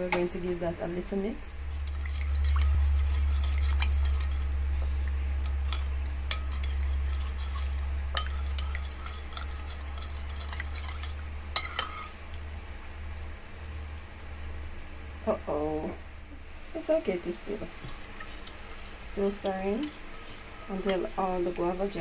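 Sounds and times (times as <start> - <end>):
low steady hum: 0.0 - 22.0
spoon stirring liquid in bowl: 1.6 - 4.6, 5.4 - 12.2, 17.5 - 22.0.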